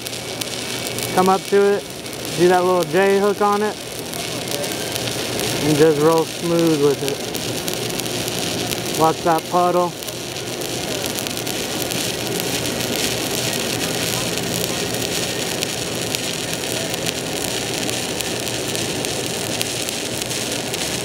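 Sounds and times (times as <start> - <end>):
welding arc crackling: 0.0 - 21.0.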